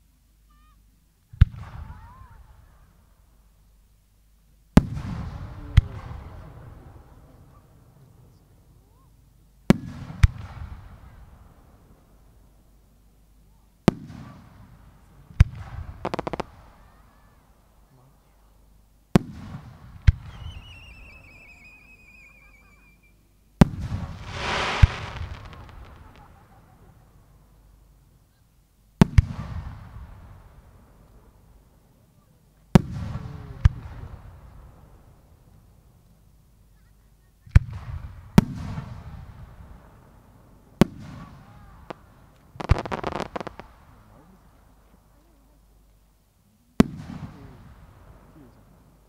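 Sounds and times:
firework whistle falling in pitch: 0:20.4 - 0:23.1
sharp crack: 0:23.6 - 0:26.5
firework launch bang: 0:23.6 - 0:26.6
firework shell bursting with echo: 0:24.2 - 0:26.5.

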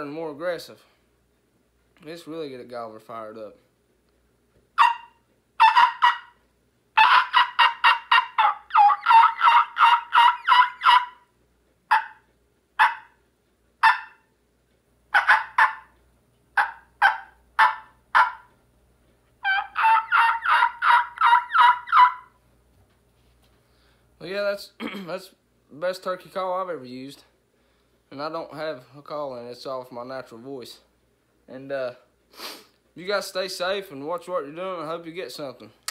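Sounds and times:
man imitating turkey yelps: 0:04.8 - 0:06.4, 0:07.0 - 0:11.3, 0:11.9 - 0:12.2, 0:12.8 - 0:13.2, 0:13.8 - 0:14.2, 0:15.1 - 0:15.9, 0:16.6 - 0:18.5, 0:19.4 - 0:22.4.

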